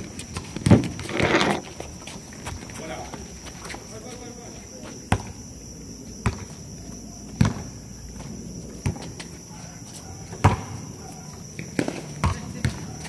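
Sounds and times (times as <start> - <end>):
insects trilling: 0.0 - 13.0
basketball thumping on court: 0.4 - 1.0, 6.2 - 6.5, 7.3 - 7.8, 10.3 - 10.8.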